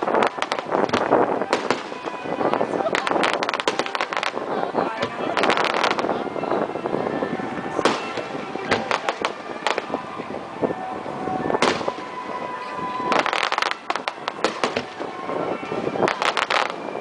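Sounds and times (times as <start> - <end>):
firework cracks: 0.0 - 6.2, 7.8 - 10.0, 11.5 - 12.4, 13.1 - 17.0.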